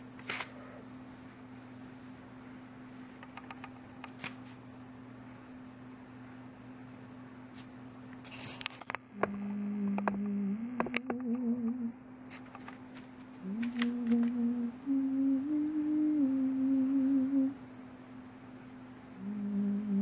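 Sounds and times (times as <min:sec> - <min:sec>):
person humming: 0:09.1 - 0:12.0, 0:13.4 - 0:17.6, 0:19.1 - 0:20.0.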